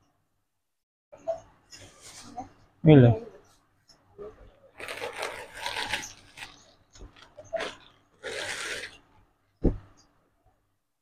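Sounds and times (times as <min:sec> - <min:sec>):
plastic bag and clothes rustling: 0:04.8 - 0:09.0.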